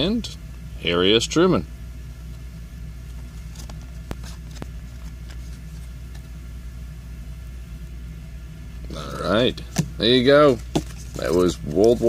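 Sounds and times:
low background hum: 0:00.0 - 0:12.0
card clicks and rustles: 0:03.0 - 0:06.3, 0:09.7 - 0:12.0.

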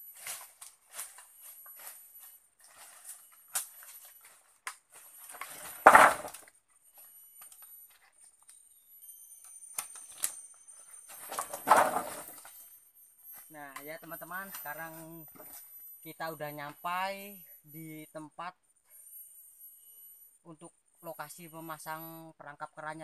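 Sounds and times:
wooden poles clattering: 0:00.1 - 0:08.2, 0:09.8 - 0:12.7
poles knocking together: 0:05.6 - 0:06.4, 0:11.3 - 0:12.4.

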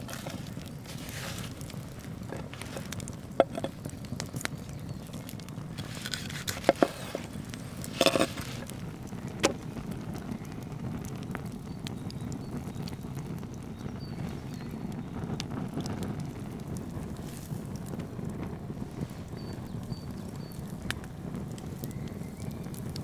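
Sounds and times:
wood fire rushing: 0:00.0 - 0:23.0.

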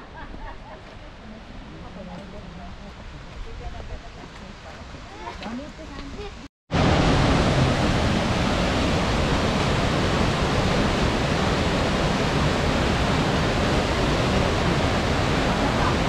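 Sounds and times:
waterfall rushing over rocks: 0:06.8 - 0:16.0.

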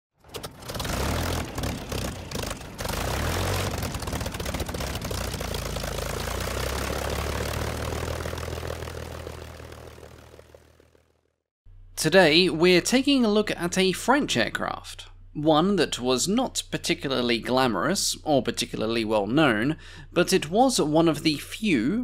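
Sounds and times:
propeller aircraft engine drone: 0:00.2 - 0:11.4.

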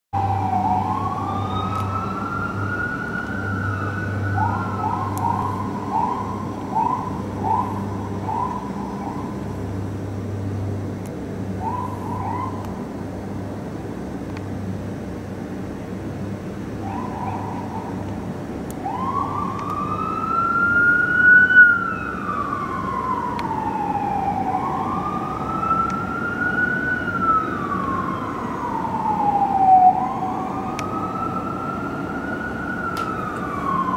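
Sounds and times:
fire engine siren wailing: 0:00.2 - 0:10.8, 0:11.4 - 0:13.8, 0:16.6 - 0:33.9.

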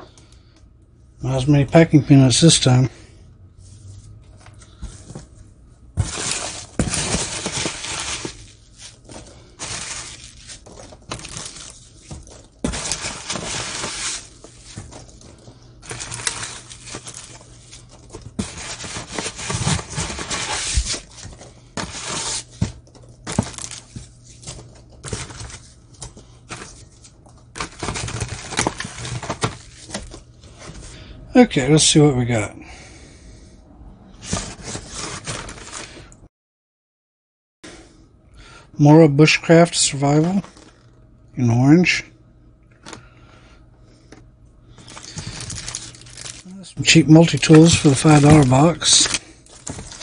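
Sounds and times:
packing peanuts rustling in a box: 0:06.0 - 0:30.9, 0:34.2 - 0:36.1, 0:44.8 - 0:50.0.

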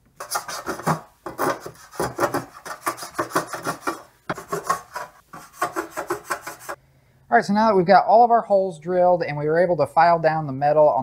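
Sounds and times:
hand file rasping on sheet metal: 0:00.2 - 0:06.8.

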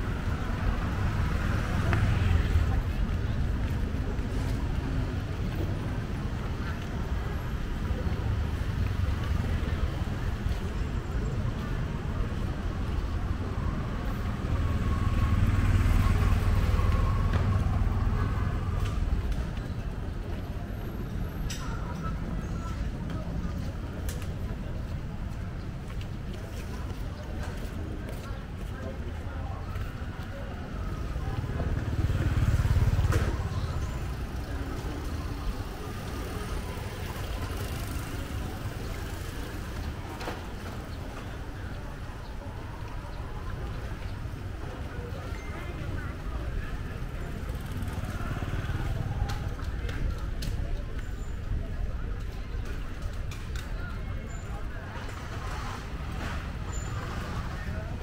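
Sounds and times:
street traffic engine rumble: 0:00.0 - 0:58.0.

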